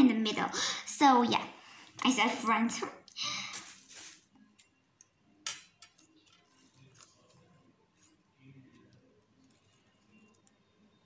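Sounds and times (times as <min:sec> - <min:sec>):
thin plastic crinkling: 0:03.3 - 0:04.7, 0:06.0 - 0:10.6.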